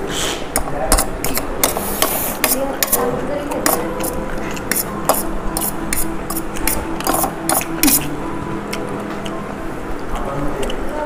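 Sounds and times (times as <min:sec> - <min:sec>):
noisy eating clicks and scrapes: 0:00.5 - 0:08.1, 0:10.0 - 0:11.0.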